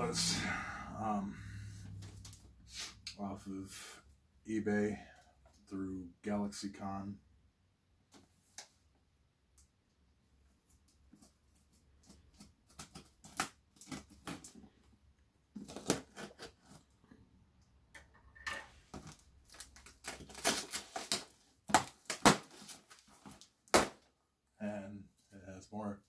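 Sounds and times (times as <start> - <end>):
packing tape tearing: 12.3 - 14.6, 15.6 - 16.8, 18.9 - 24.0.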